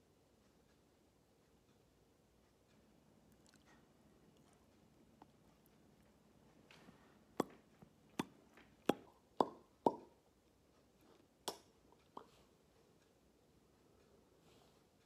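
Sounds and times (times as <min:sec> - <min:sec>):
lips smacking: 0:03.3 - 0:05.7.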